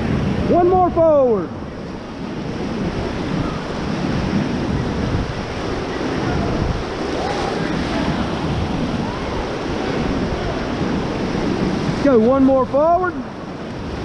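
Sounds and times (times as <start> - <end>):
river rapids rushing: 0.0 - 14.0.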